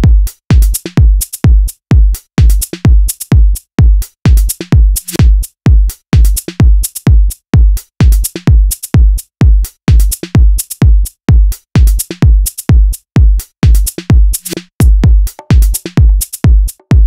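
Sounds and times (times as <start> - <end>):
heavy kick drum: 0.0 - 17.0
electronic dance music: 4.3 - 5.5, 13.6 - 17.0.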